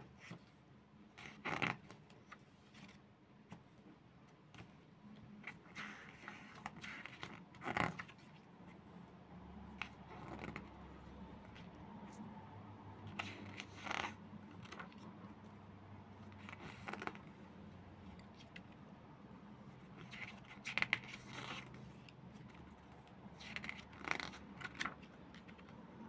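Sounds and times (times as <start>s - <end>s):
glossy pages rustling: 16.2s - 17.4s, 19.7s - 25.8s.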